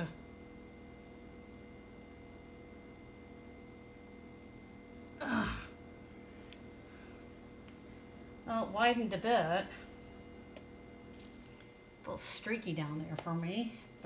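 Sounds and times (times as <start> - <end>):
faint steady hum: 0.0 - 14.0
person sighing: 5.2 - 5.8.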